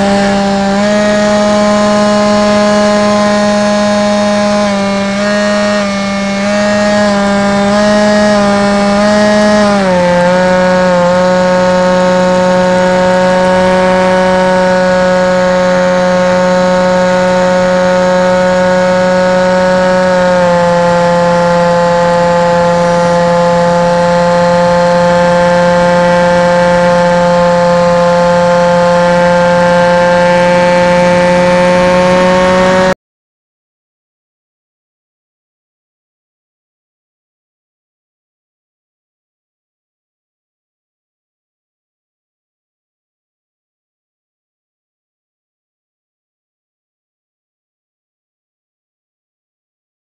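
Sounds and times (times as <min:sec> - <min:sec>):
model plane motor buzzing: 0:00.0 - 0:33.0.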